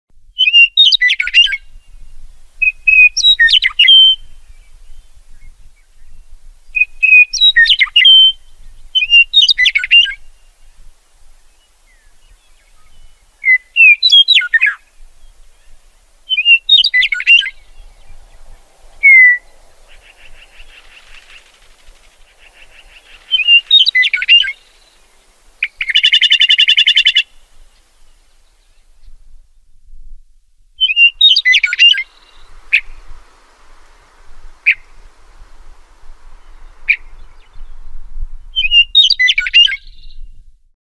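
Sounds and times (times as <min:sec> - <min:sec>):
meadowlark singing: 0:00.3 - 0:29.3, 0:30.8 - 0:40.4
buzzy rattle call: 0:19.0 - 0:24.8.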